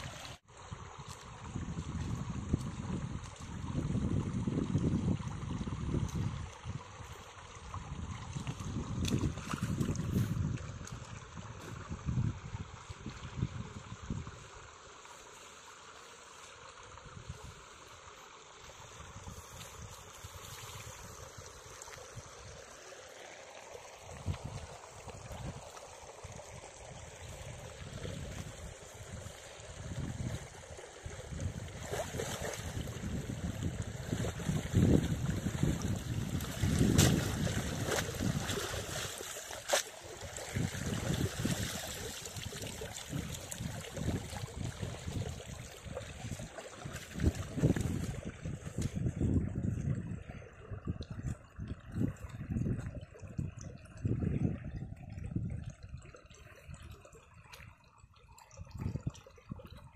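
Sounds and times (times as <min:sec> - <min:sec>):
shallow water sloshing: 0:29.6 - 0:59.9.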